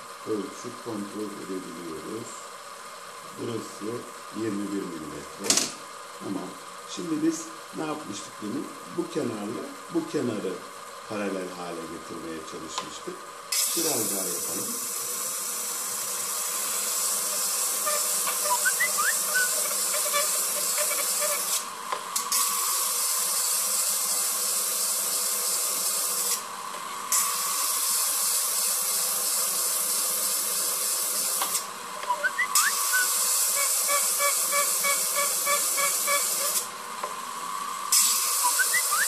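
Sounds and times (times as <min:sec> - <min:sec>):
stone grinding hiss: 0:16.2 - 0:21.6, 0:32.3 - 0:36.7, 0:37.9 - 0:39.0.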